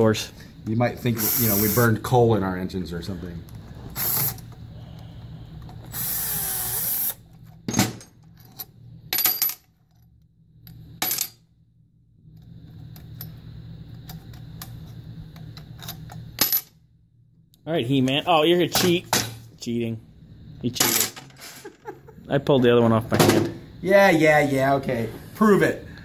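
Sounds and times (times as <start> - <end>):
cordless drill whine: 3.9 - 4.5, 5.8 - 7.2.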